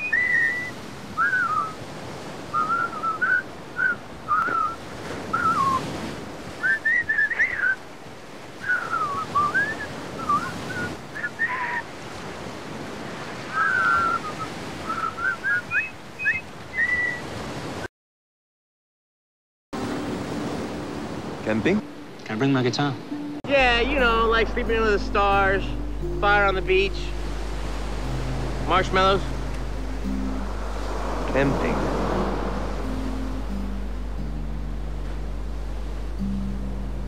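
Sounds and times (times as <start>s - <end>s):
person whistling a tune: 0.0s - 1.8s, 2.6s - 5.8s, 6.6s - 7.8s, 8.6s - 11.6s, 13.5s - 17.2s
surf hissing: 0.0s - 17.9s, 19.8s - 37.0s.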